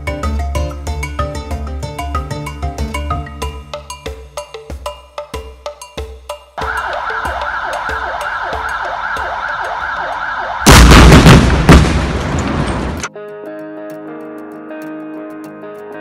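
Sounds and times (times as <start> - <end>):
warning siren wailing: 6.6 - 10.7
rock blast bang and rumble: 10.7 - 13.0.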